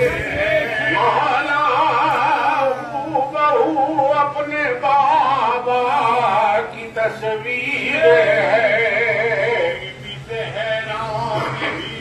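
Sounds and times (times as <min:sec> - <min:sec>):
man singing devotional song: 0:00.0 - 0:12.0
steady low hum: 0:00.0 - 0:12.0.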